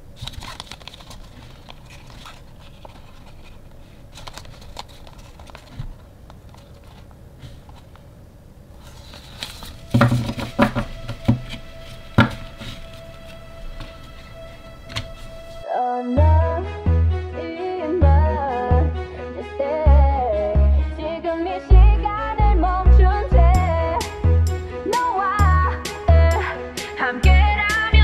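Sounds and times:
cardboard rustling: 0.0 - 8.1, 8.7 - 15.6
soft background music: 9.6 - 28.0.

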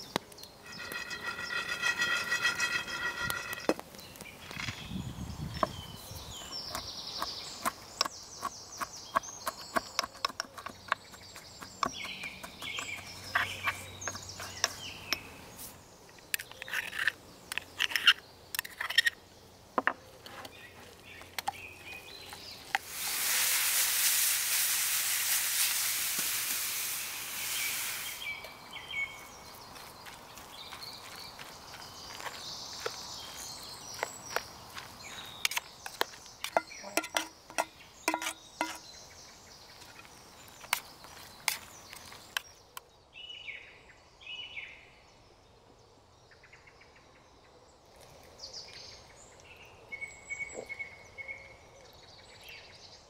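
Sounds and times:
birds singing: 0.0 - 22.9, 26.8 - 53.0
metal spoon in metal mug: 0.7 - 3.7, 36.5 - 38.8
steady hiss: 22.5 - 28.8.

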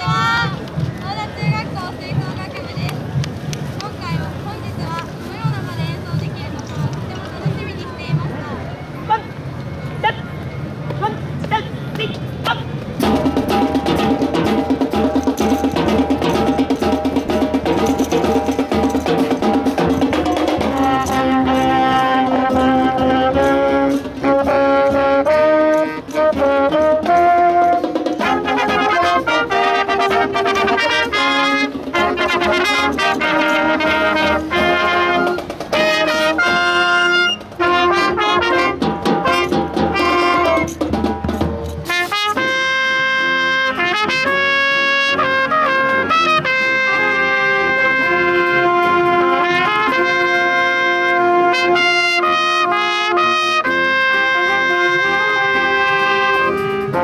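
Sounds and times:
drums: 0.0 - 9.6, 10.6 - 57.0
marching band playing: 0.0 - 57.0
trumpets: 8.7 - 57.0.

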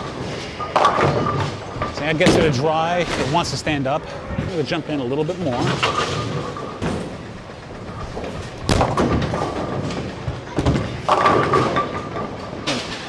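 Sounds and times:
bowling pins crashing: 5.6 - 13.0.

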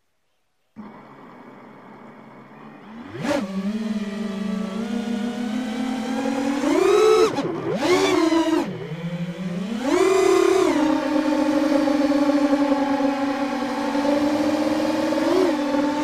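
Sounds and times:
quadcopter motors whining: 0.8 - 16.0.

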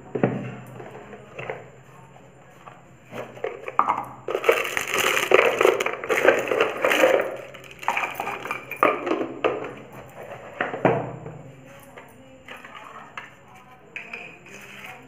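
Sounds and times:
dense crackling and crunching: 3.3 - 8.7.

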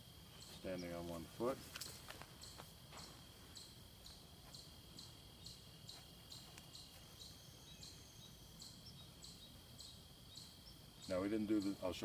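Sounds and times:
high-pitched insect trill: 0.0 - 12.0
insect high chirp: 0.0 - 12.0.

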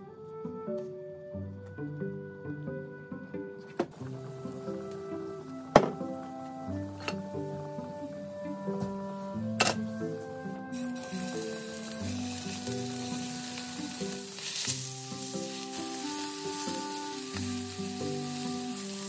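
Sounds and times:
meat sizzling in hot oil: 10.7 - 19.0.

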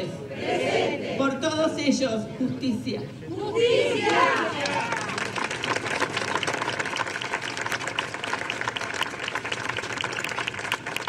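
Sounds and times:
crowd applauding: 4.1 - 11.0.

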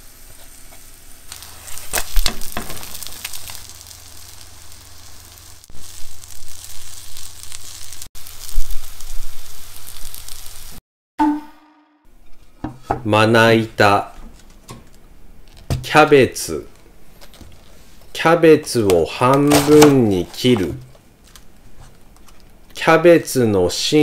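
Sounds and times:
batter sizzling in a frying pan: 0.0 - 10.8.

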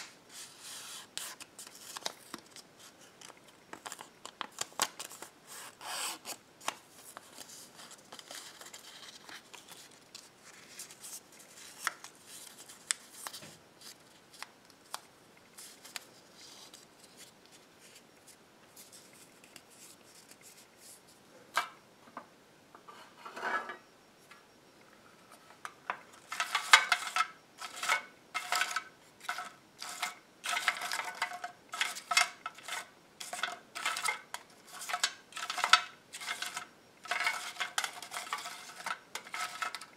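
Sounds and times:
paper folding rustles: 0.0 - 21.2
paper slips clattering in metal tin: 26.2 - 39.9.

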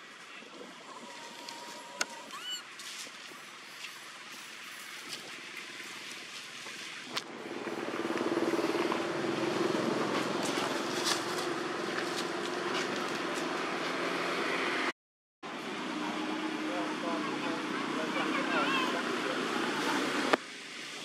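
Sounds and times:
vehicle engine humming: 7.0 - 14.9.

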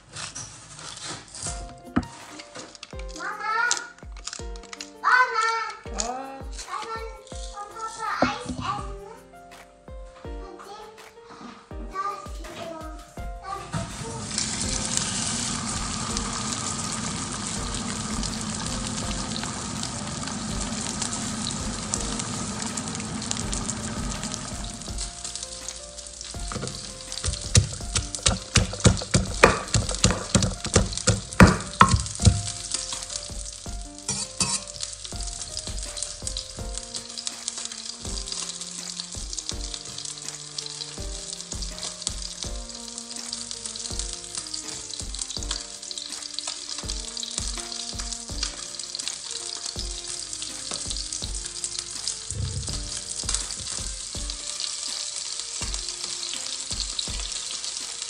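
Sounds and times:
frying sizzle: 13.4 - 58.0
wooden pestle pounding in mortar: 14.6 - 16.4, 23.4 - 25.3, 26.3 - 37.0.

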